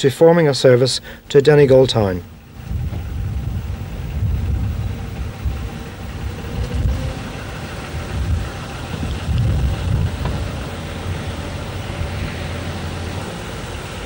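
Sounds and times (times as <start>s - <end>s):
diesel railcar engine rumbling: 0.0s - 14.0s.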